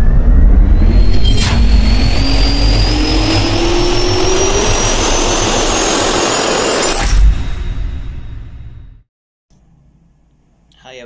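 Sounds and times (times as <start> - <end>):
jet turbine rushing air: 0.0 - 7.0
whines rising in pitch: 0.0 - 8.9
sharp hit: 0.0 - 9.0.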